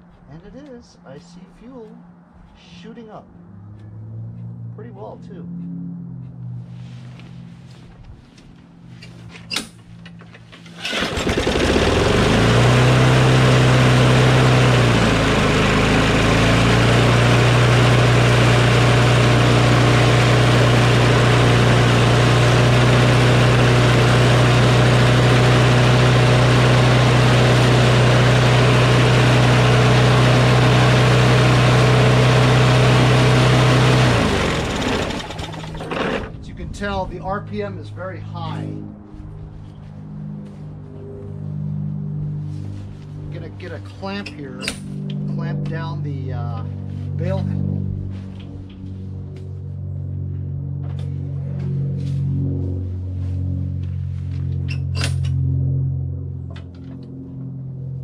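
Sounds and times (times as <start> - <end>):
lawn mower engine running: 9.7 - 36.5.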